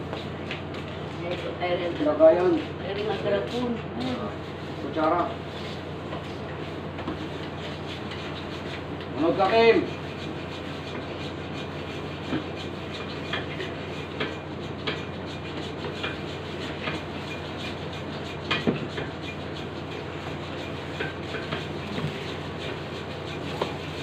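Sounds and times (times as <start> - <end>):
steady low hum: 0.0 - 24.0
hand saw rasping: 7.5 - 24.0.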